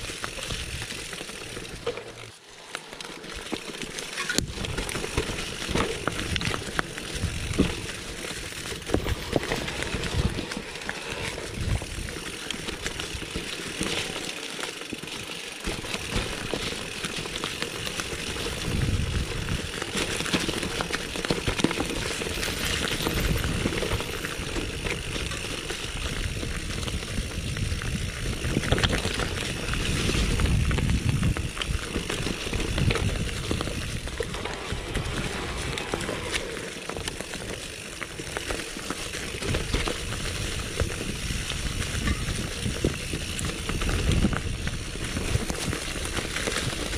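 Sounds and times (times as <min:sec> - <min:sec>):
bike tyres over dirt and leaves: 0:00.0 - 0:46.9
bike frame rattling and knocking: 0:03.4 - 0:14.2, 0:14.8 - 0:46.9
wind rumble on microphone: 0:05.7 - 0:08.0, 0:08.8 - 0:12.3, 0:18.2 - 0:20.0, 0:22.7 - 0:36.6, 0:39.4 - 0:46.9.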